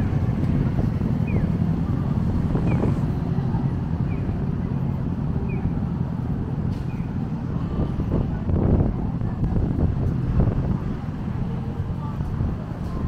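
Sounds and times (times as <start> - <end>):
wind on microphone: 0.0 - 6.4, 7.0 - 13.0
traffic rumble: 0.0 - 13.0.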